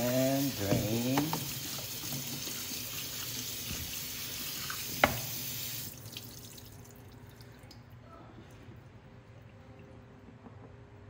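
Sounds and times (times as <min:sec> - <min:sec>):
tap water running into sink: 0:00.0 - 0:06.9.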